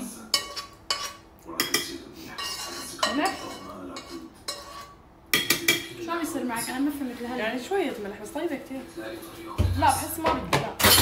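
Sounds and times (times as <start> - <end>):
utensil scraping metal pan: 0.3 - 1.2, 2.3 - 5.0.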